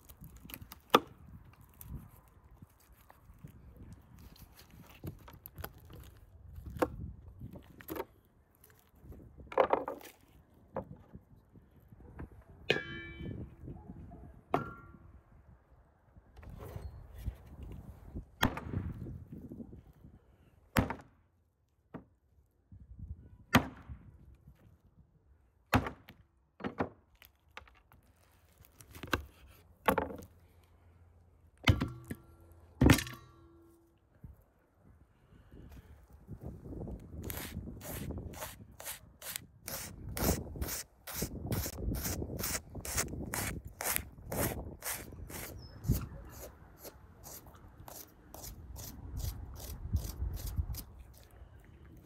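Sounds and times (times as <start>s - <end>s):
metallic ring: 12.7s - 13.4s.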